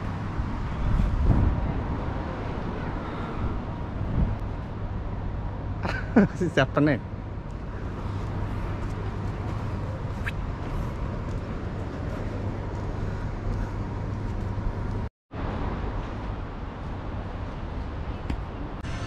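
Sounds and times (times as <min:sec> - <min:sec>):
street traffic rumble: 0:00.0 - 0:19.0.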